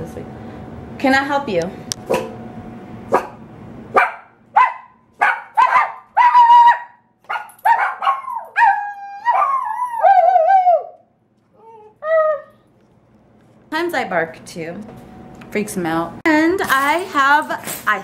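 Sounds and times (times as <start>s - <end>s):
puppy barking and howling: 4.0s - 12.6s.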